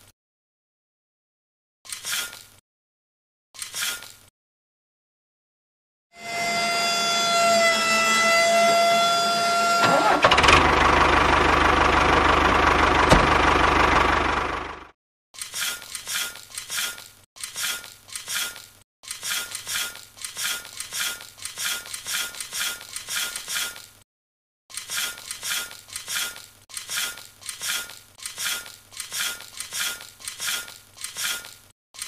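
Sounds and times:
trowel scraping damp soil: 0:15.4 - 0:23.8, 0:24.7 - 0:31.6.

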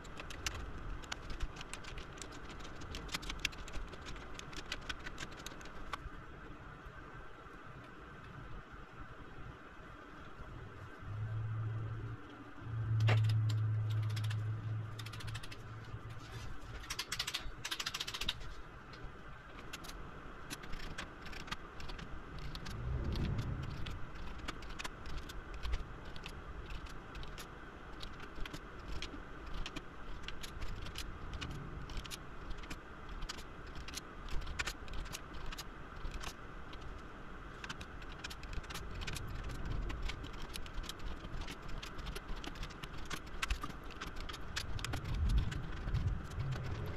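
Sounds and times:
low hum: 0:06.0 - 0:27.3, 0:42.8 - 0:46.9.

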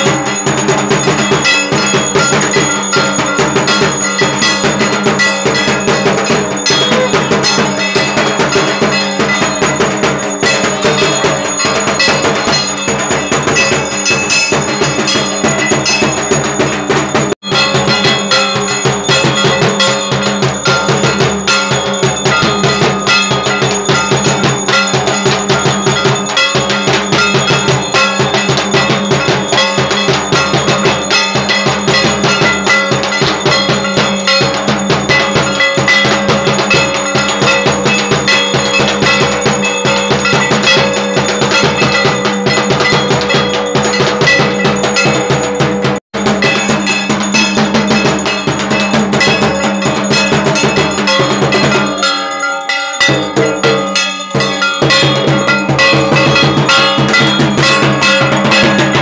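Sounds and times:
bells and gongs clanging: 0:00.0 - 0:59.0
drumming: 0:00.0 - 0:59.0.

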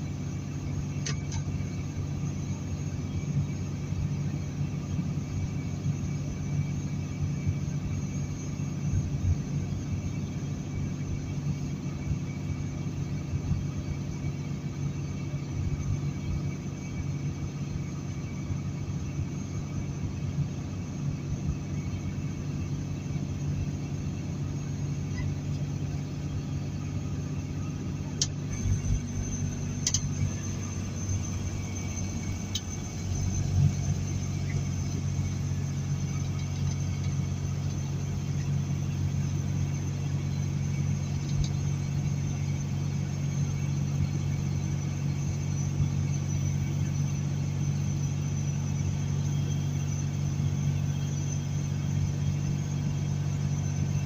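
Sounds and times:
diesel truck engine droning: 0:00.0 - 0:54.0
road noise: 0:24.4 - 0:42.4.

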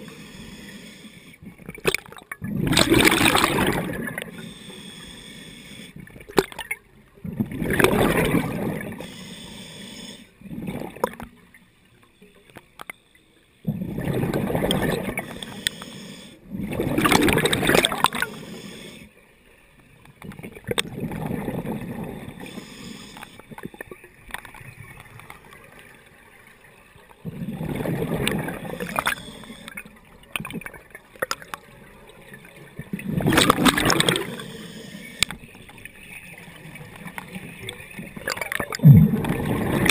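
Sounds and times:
scuba regulator bubbling exhalations: 0:01.8 - 0:04.6, 0:13.6 - 0:15.9, 0:16.5 - 0:19.0, 0:33.0 - 0:35.3, 0:38.2 - 0:39.9.

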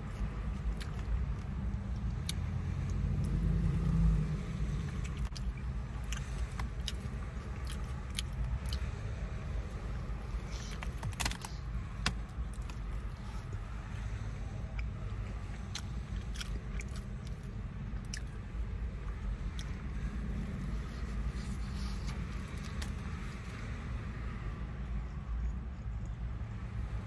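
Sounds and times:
car interior rumble: 0:00.0 - 0:27.0
chewing mouth clicks: 0:04.9 - 0:08.9, 0:15.5 - 0:18.4.

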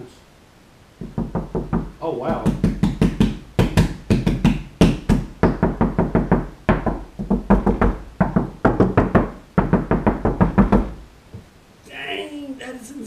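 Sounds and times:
knuckles knocking on car roof: 0:01.0 - 0:11.0.

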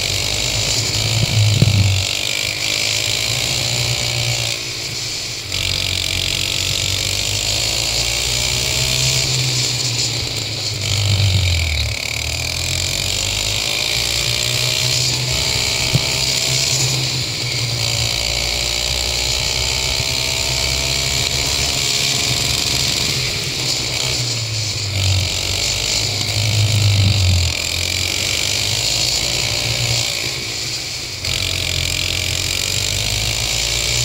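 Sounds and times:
go-kart engine revving: 0:00.0 - 0:34.0.

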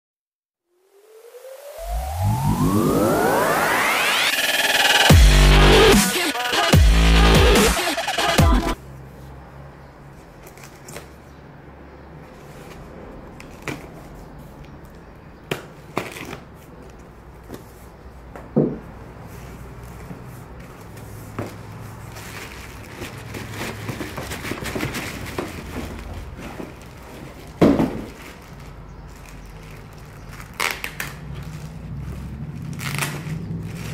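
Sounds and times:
plastic rustling and crinkling: 0:19.0 - 0:33.9
cardboard flaps knocking and scraping: 0:23.0 - 0:28.2
box thump: 0:27.6 - 0:28.2.

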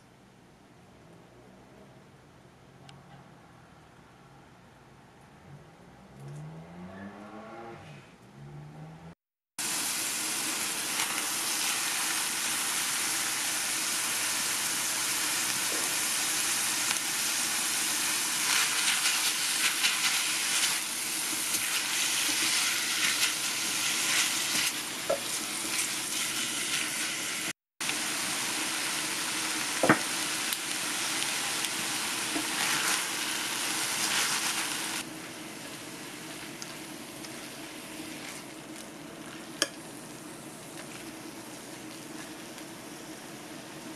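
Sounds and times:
meat sizzling in a pan: 0:09.5 - 0:43.9
spatula stirring: 0:18.4 - 0:27.0, 0:37.2 - 0:39.7.

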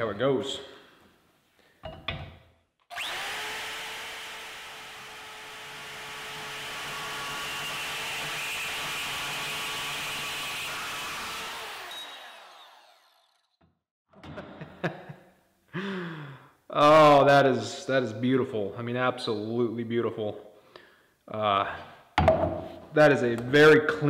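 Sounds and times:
bandsaw cutting steel: 0:02.9 - 0:13.6.

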